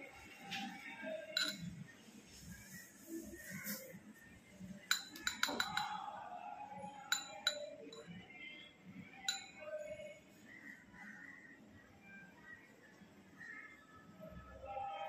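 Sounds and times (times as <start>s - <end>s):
gravel clinking on glass bowl: 1.3s - 1.8s, 4.8s - 6.0s, 7.0s - 8.2s, 9.2s - 9.9s.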